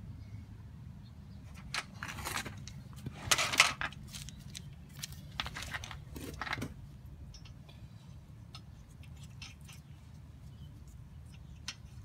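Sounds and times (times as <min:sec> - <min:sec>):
low background hum: 0:00.0 - 0:12.0.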